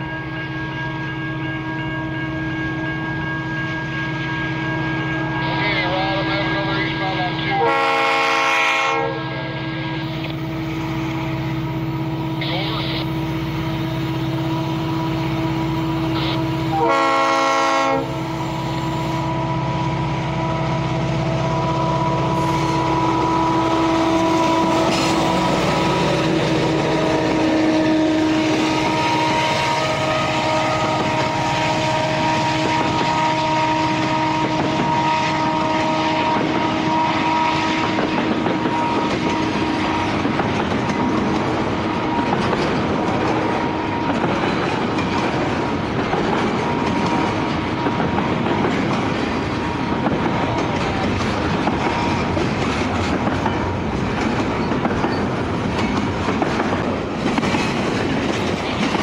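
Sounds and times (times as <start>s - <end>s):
train horn blast: 0.0s - 10.5s, 11.2s - 40.2s
diesel locomotives pulling hard: 0.0s - 59.0s.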